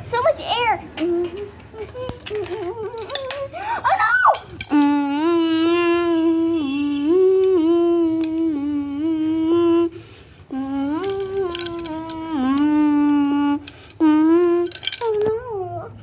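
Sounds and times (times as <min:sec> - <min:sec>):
child humming: 0:01.0 - 0:16.0.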